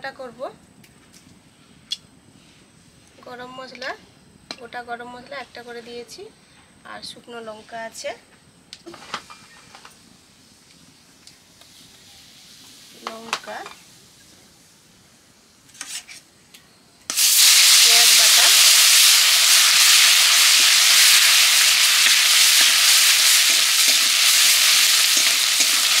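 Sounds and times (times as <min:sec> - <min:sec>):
hot oil sizzling: 0:09.3 - 0:15.6, 0:17.1 - 0:26.0
spice paste frying loudly: 0:11.5 - 0:14.2, 0:17.1 - 0:26.0
metal spatula stirring: 0:22.0 - 0:26.0.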